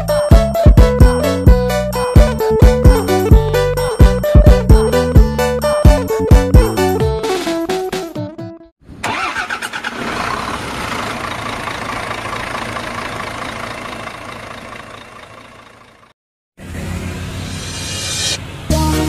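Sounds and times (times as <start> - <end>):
engine cranking and running: 9.0 - 16.1.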